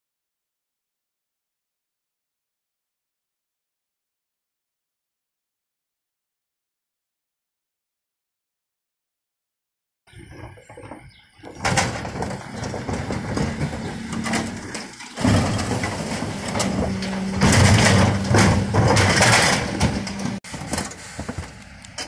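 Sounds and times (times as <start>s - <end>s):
bins rattling and banging: 10.1s - 22.0s
hydraulic bin lifter: 10.1s - 22.0s
truck engine running: 10.6s - 22.0s.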